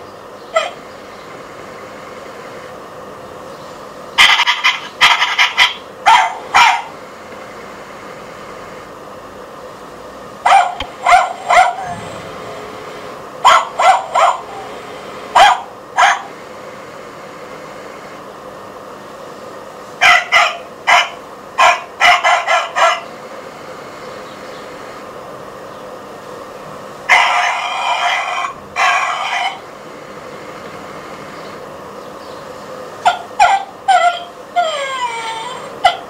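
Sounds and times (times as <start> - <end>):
toy dog barks from speaker: 4.2 - 6.9, 20.0 - 23.0, 27.1 - 29.6, 33.1 - 36.0
faint hum: 5.8 - 36.0.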